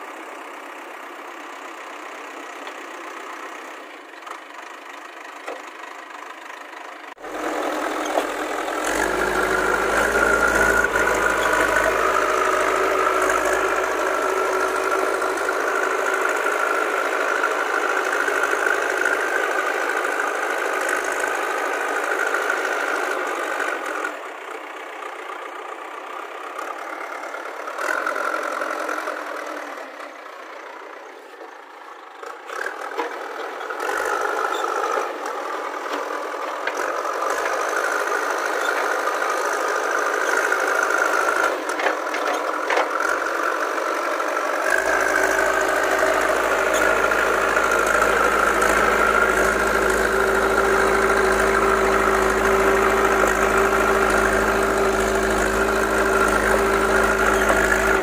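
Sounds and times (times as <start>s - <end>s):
diesel engine running hard: 0.0s - 58.0s
loader bucket pushing into earth: 7.2s - 16.8s, 44.8s - 58.0s.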